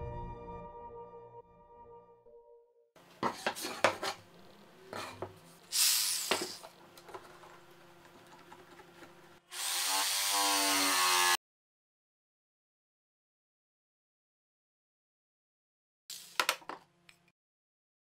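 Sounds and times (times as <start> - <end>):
scrape on wood: 3.2 - 4.2, 4.9 - 5.5
jigsaw motor running: 9.5 - 11.4.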